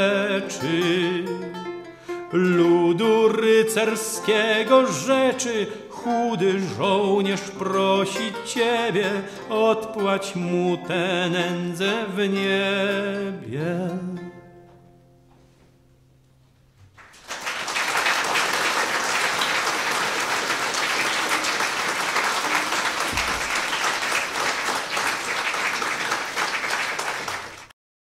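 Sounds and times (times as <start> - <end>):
audience applauding: 16.9 - 27.8.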